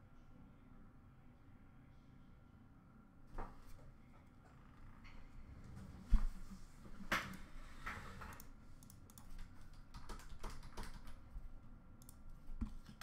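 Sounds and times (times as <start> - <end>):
computer keyboard typing: 8.3 - 11.4, 12.0 - 13.0.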